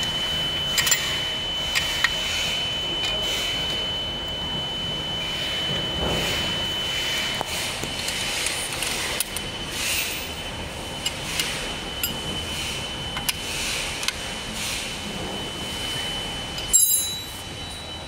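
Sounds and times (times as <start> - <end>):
wrench clinking on metal nut: 0.7 - 1.2, 16.6 - 17.3.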